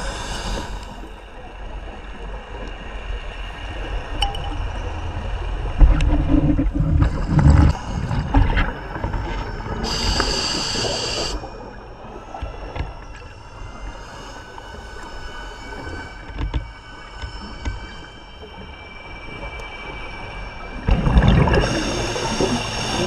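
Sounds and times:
hissing regulator inhalation: 0:00.0 - 0:01.2, 0:09.7 - 0:11.7, 0:13.6 - 0:18.3, 0:21.4 - 0:23.0
faint steady whining tones: 0:00.0 - 0:23.0
regulator exhaled bubbles rumble: 0:03.6 - 0:11.2, 0:20.9 - 0:23.0.

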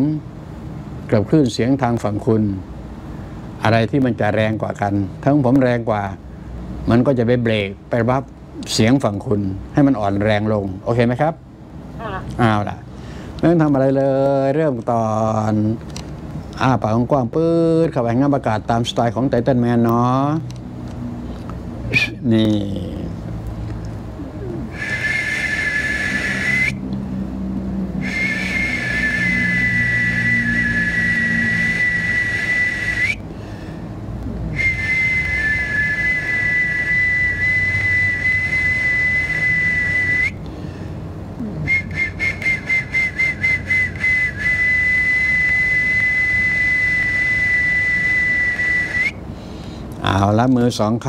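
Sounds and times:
high two-toned whistle: 0:24.8 - 0:26.8, 0:28.0 - 0:33.2, 0:34.6 - 0:40.4, 0:41.7 - 0:49.2.

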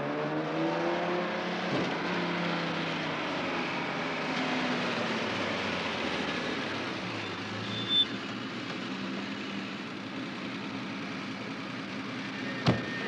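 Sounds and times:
car engine: 0:00.0 - 0:13.0
brief high squeal: 0:07.6 - 0:08.2, 0:12.4 - 0:13.0.

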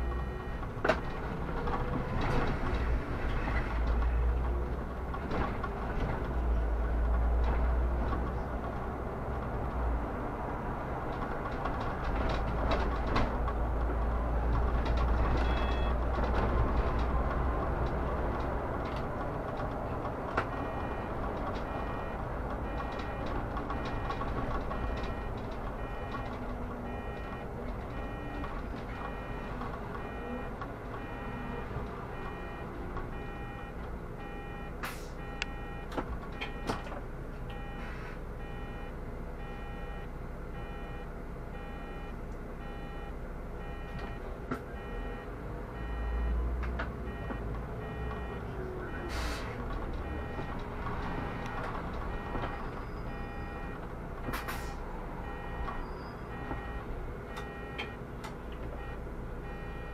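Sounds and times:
bus interior running hum: 0:00.0 - 0:59.9
electronic warning beep: 0:15.4 - 0:15.9, 0:20.7 - 0:26.3, 0:26.9 - 0:28.4, 0:29.0 - 0:31.6, 0:32.2 - 0:36.7, 0:37.5 - 0:44.2, 0:44.8 - 0:46.4, 0:47.1 - 0:49.1, 0:50.0 - 0:50.5, 0:51.1 - 0:58.0, 0:58.8 - 0:59.9.

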